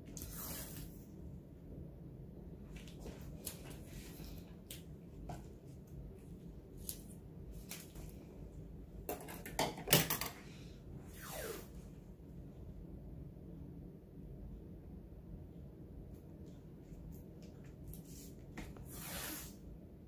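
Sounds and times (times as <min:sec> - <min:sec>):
short scrape: 0:00.2 - 0:01.0, 0:11.1 - 0:11.8, 0:18.9 - 0:19.6.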